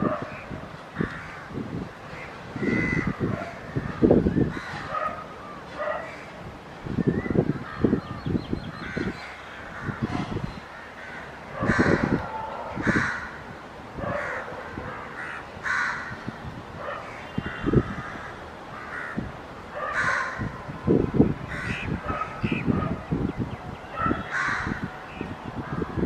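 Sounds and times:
crows cawing: 0.9s - 4.9s, 8.7s - 13.5s, 14.1s - 16.4s, 17.0s - 20.6s, 21.5s - 22.0s, 24.2s - 24.9s.

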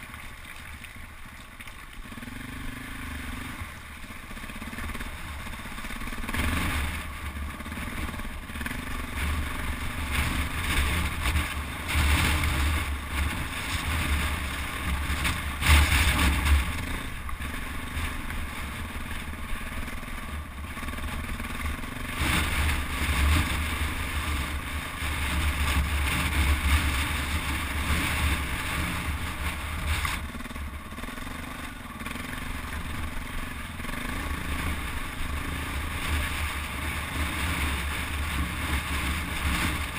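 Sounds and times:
motorcycle engine revving off-road: 0.0s - 39.9s.

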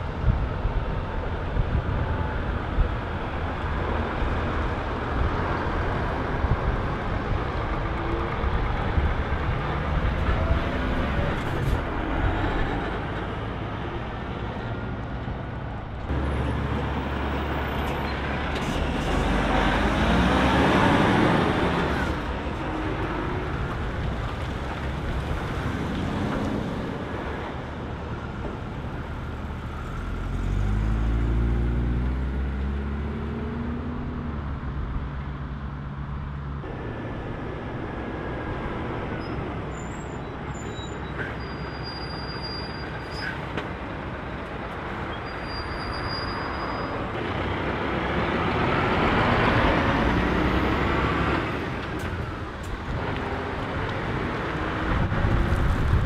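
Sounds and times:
diesel trucks driving past: 0.0s - 56.0s
tyre and road noise: 0.0s - 56.0s.

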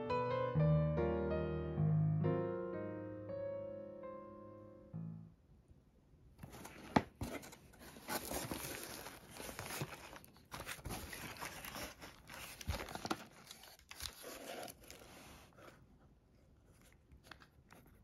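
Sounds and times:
cardboard rustling and crinkling: 6.4s - 18.0s
plastic packets crinkling: 7.7s - 15.1s.

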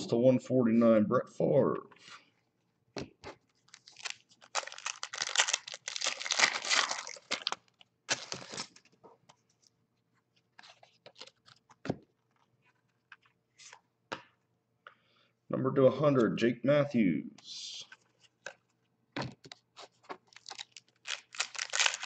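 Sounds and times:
foil wrapper crinkling and tearing: 3.7s - 8.8s, 20.3s - 22.0s.

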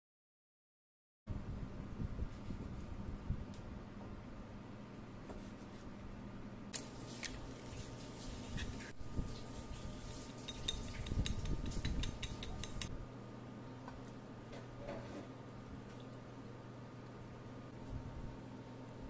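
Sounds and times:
chopsticks beating egg in bowl: 6.8s - 12.9s.

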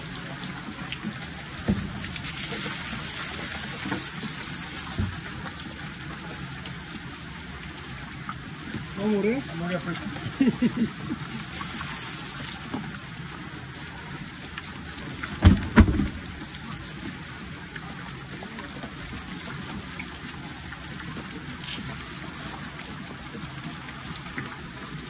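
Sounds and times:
shrimp splashing into water: 15.2s - 17.8s
dull thumps: 15.4s - 16.4s.

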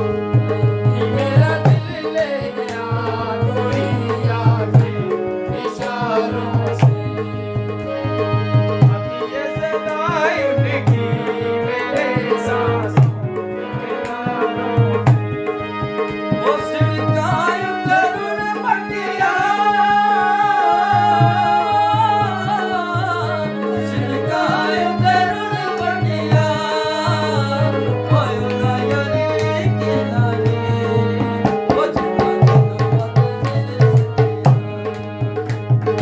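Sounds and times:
electronic keyboard chords: 0.0s - 36.0s
men singing: 0.0s - 36.0s
hand drums beating: 30.2s - 36.0s.

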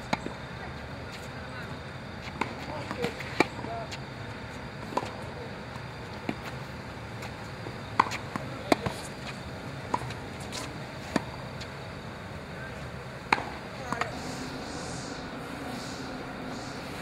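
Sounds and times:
tennis ball bouncing on court: 8.0s - 9.1s, 13.3s - 14.3s
tennis ball struck by racket: 13.3s - 14.6s.

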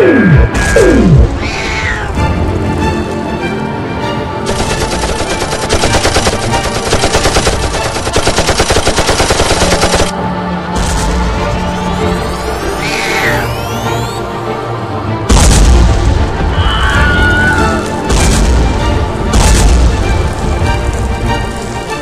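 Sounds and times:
machine-gun fire: 4.5s - 10.2s.

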